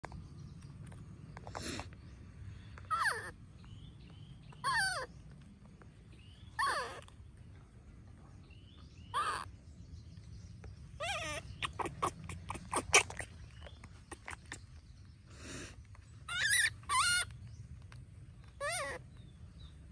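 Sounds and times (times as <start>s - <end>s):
baby monkey wavering cries: 2.8s - 3.4s, 4.6s - 5.1s, 6.6s - 7.1s, 9.1s - 9.5s, 11.0s - 14.6s, 16.3s - 17.3s, 18.5s - 19.0s
monkey clicks and squeaks: 11.0s - 14.8s, 16.3s - 19.0s.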